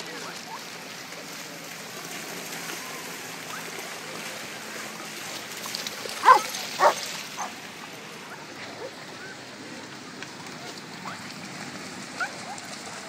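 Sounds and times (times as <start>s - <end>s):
water washing in shallows: 0.0s - 13.0s
dog barking: 6.2s - 7.5s.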